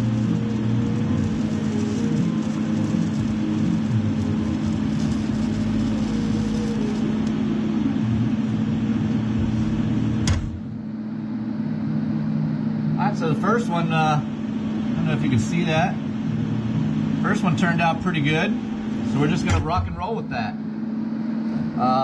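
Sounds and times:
arc cutting off click: 0.0s - 7.4s
welding arc buzzing hiss: 0.0s - 10.8s
low hum: 0.0s - 22.0s.

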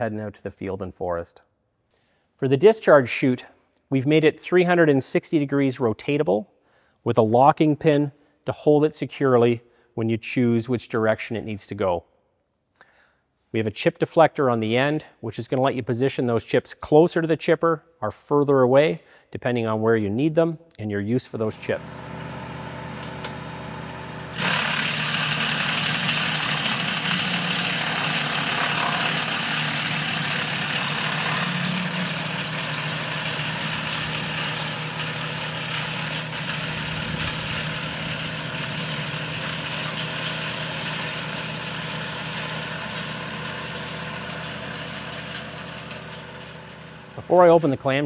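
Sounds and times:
tractor and chipper humming: 21.4s - 48.0s
wood chipper cutting a branch: 21.4s - 48.0s.

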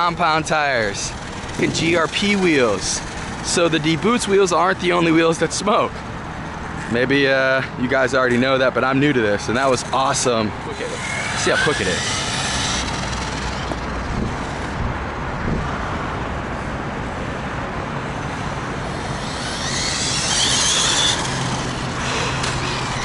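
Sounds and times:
rc car motor whine: 0.0s - 7.2s, 9.3s - 15.0s, 18.1s - 23.0s
steady rush of noise: 0.0s - 23.0s.

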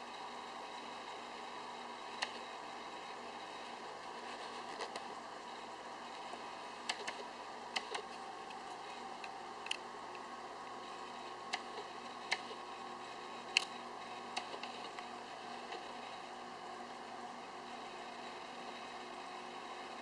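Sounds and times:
faint hum: 0.0s - 20.0s.

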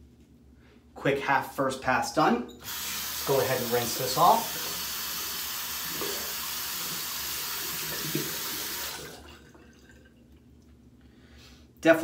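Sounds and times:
tap water running into sink: 2.7s - 10.4s.

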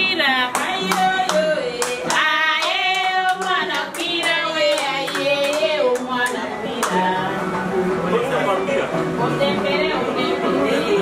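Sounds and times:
hand claps: 0.5s - 7.0s.

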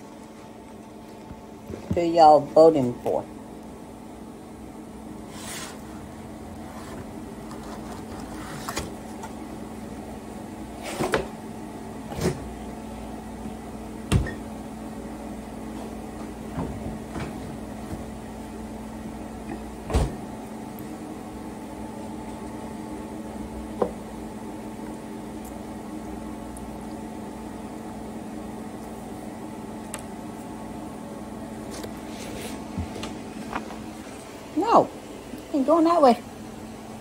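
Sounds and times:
steady low hum: 0.0s - 37.0s
refrigerator door opening: 14.1s - 14.4s, 19.8s - 20.3s.

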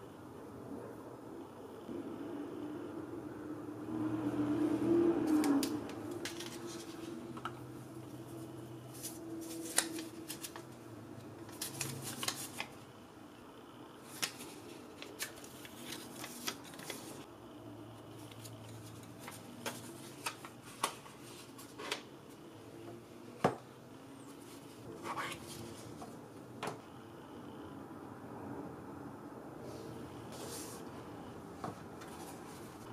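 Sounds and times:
faint steady hum: 0.0s - 32.9s
paper and card rustling: 5.3s - 7.5s, 8.3s - 10.8s, 11.4s - 12.8s, 14.0s - 17.3s, 18.2s - 22.1s, 24.3s - 26.2s, 30.3s - 30.9s, 31.6s - 32.9s.

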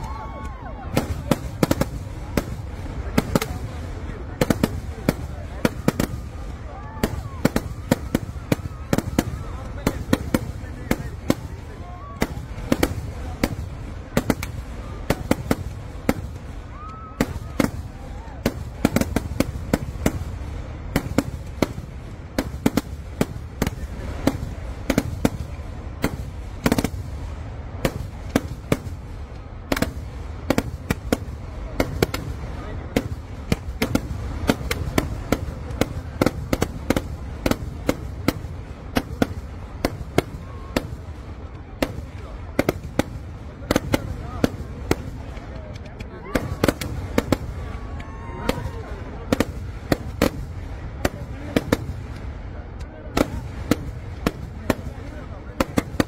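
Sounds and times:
continuous low rumble: 0.0s - 56.0s
rising firework whistle: 16.6s - 18.4s, 40.2s - 41.0s.

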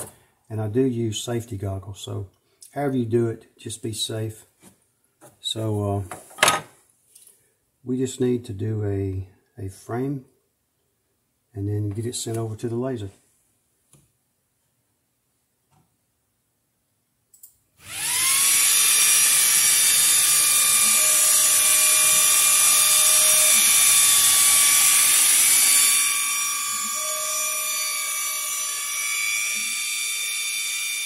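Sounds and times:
laser gantry motors whining: 17.8s - 31.0s.

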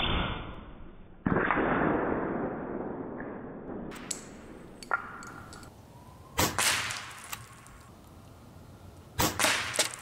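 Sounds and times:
crack: 1.2s - 5.7s, 6.4s - 8.2s, 9.2s - 10.0s
sharp clicks: 3.9s - 5.7s.

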